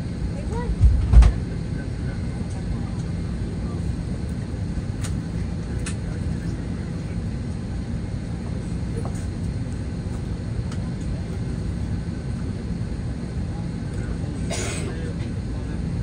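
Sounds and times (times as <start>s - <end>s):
low airliner cabin rumble: 0.0s - 16.0s.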